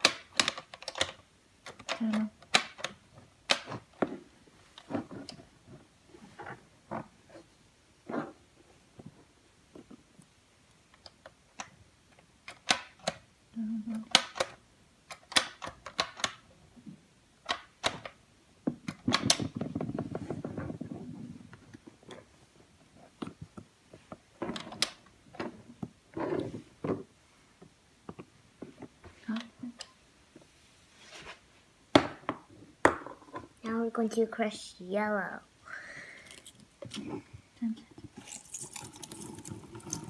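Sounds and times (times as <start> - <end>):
water beads dropping into plastic cup: 38.2 - 40.0.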